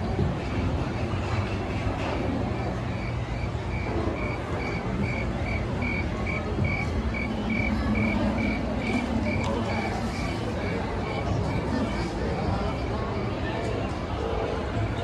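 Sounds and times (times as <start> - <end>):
crickets chirping: 3.0 - 10.2.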